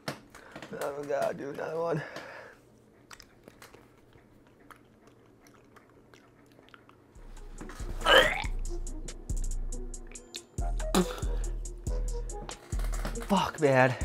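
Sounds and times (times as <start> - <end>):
faint chewing: 0.4 - 8.5
wet mouth clicks: 2.8 - 7.2, 10.0 - 11.2
person gagging: 8.0 - 8.6, 10.8 - 11.5.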